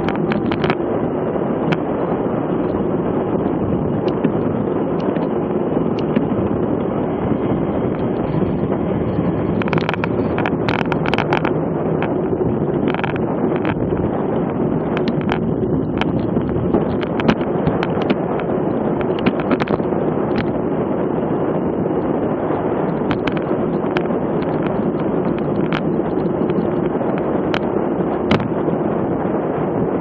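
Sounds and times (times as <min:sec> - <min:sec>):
bike road noise: 0:00.0 - 0:30.0
wind rush over microphone: 0:00.0 - 0:30.0
sharp clicks: 0:09.6 - 0:12.2, 0:14.8 - 0:20.5, 0:28.3 - 0:28.5.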